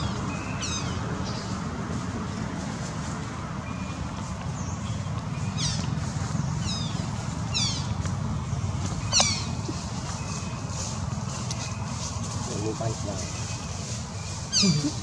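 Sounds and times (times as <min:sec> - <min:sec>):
low background rumble: 0:00.0 - 0:15.0
monkey cries: 0:14.5 - 0:15.0.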